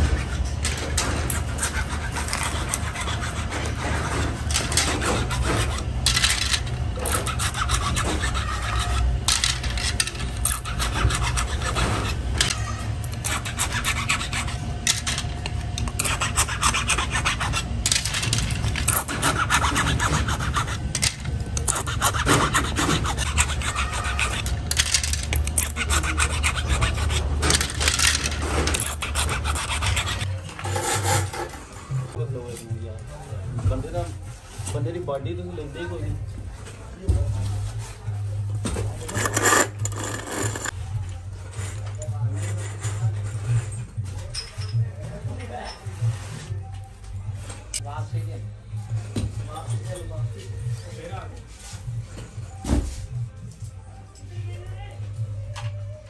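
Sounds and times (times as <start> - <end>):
blade scraping plastic: 0.0 - 31.6, 39.0 - 40.8.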